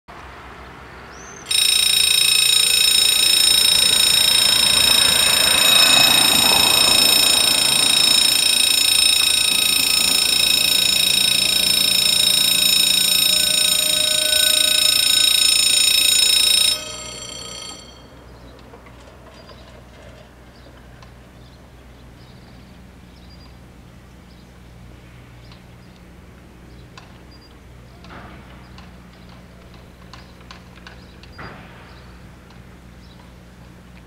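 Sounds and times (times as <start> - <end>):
level crossing bells ringing: 1.5 - 18.4.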